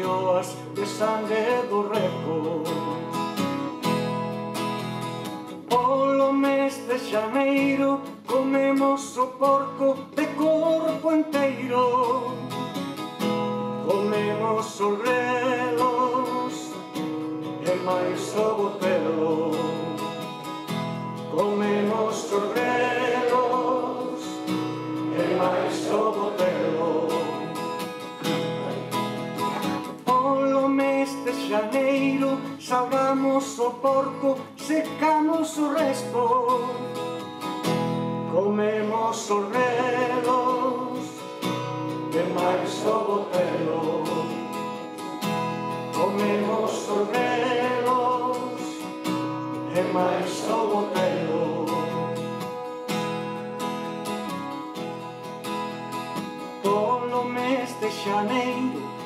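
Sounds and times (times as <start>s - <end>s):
man singing: 0.0s - 3.1s, 5.6s - 12.7s, 13.8s - 20.4s, 21.3s - 29.1s, 29.9s - 36.9s, 38.3s - 41.4s, 42.0s - 44.9s, 45.9s - 52.4s, 56.6s - 59.0s
strummed acoustic guitar: 0.0s - 59.0s.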